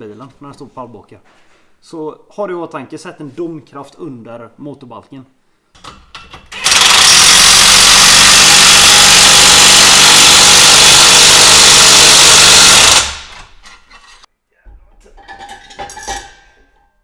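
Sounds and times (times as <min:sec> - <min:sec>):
handheld power tool running: 0:06.6 - 0:13.4.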